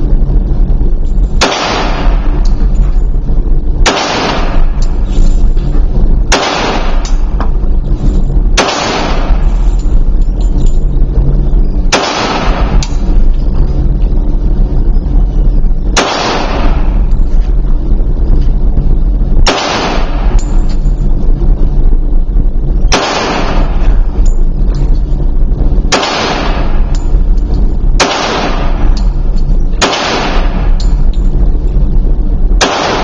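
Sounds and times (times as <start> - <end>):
low rumble: 0.0 - 33.0
pistol shots reverberating indoors: 3.9 - 4.8, 8.6 - 9.4, 28.0 - 28.7, 29.8 - 30.6, 32.6 - 33.0.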